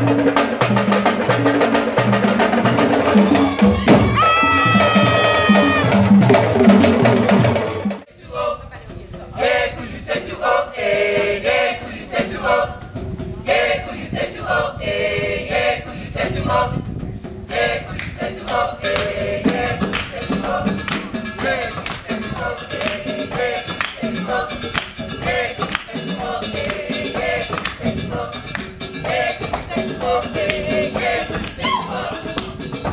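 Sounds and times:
loud hand-drumming: 0.0 - 8.1, 18.4 - 32.9
group of voices singing: 0.0 - 32.9
sharp rhythmic claps: 18.0 - 20.2, 20.9 - 23.0, 23.7 - 26.0, 26.6 - 26.8, 27.5 - 27.8, 29.4 - 29.7, 31.4 - 31.6, 32.3 - 32.6.

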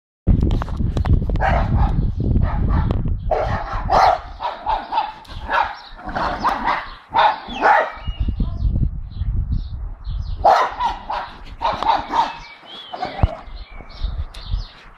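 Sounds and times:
low microphone rumble: 0.3 - 4.8, 5.4 - 14.7
dogs barking: 1.4 - 8.2, 10.4 - 13.6.

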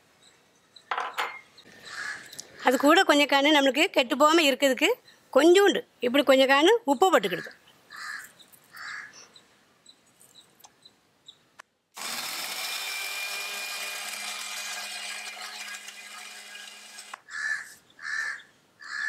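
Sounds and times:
mixer grinder motor whirring: 12.0 - 17.2.

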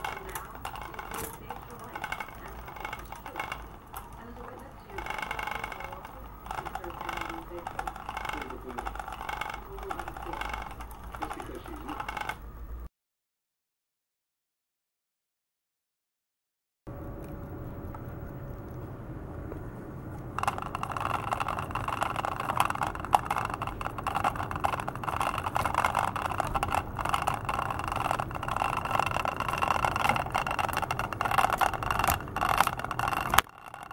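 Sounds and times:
spinning wings rattling and clicking: 0.0 - 12.4, 20.1 - 33.9
small electric motor whirring: 0.0 - 12.5, 20.2 - 33.9.

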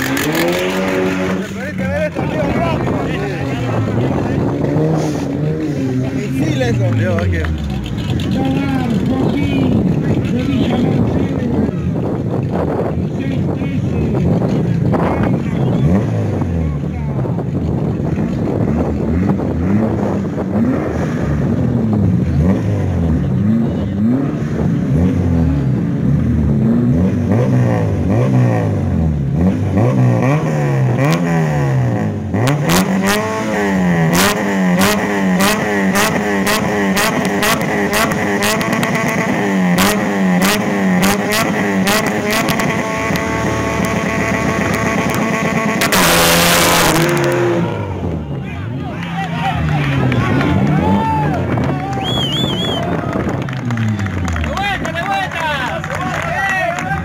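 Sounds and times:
car engine revving: 0.0 - 57.0
sharp exhaust pops: 34.2 - 47.8.

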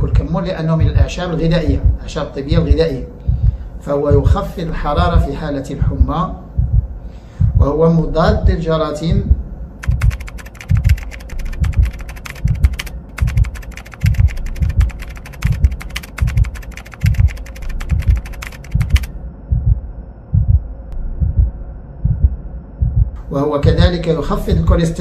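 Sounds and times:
low thudding beat: 0.8 - 24.8
rapid keyboard typing clicks: 9.8 - 19.1.

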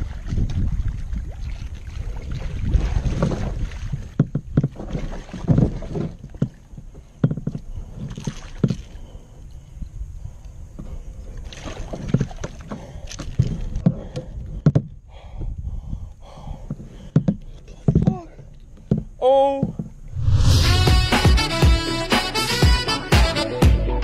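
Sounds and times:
water splashing: 0.0 - 6.8, 11.4 - 13.9
wind rumble on microphone: 0.0 - 12.4, 13.4 - 16.6, 20.1 - 21.1.

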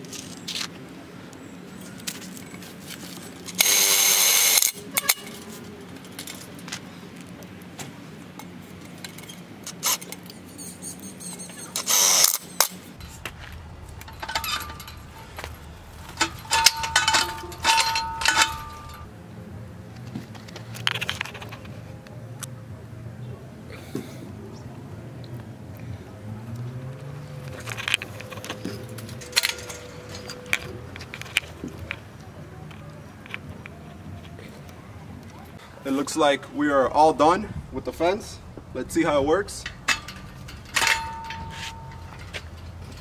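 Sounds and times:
impact drill driving screws: 3.6 - 4.7, 11.8 - 12.4
metal clinks with ringing tone: 13.9 - 19.1, 39.6 - 43.0.

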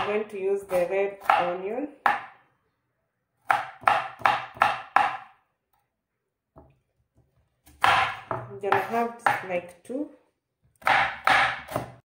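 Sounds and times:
knife chopping onion on board: 0.0 - 2.4, 3.4 - 5.4, 7.6 - 9.6, 10.8 - 12.0.

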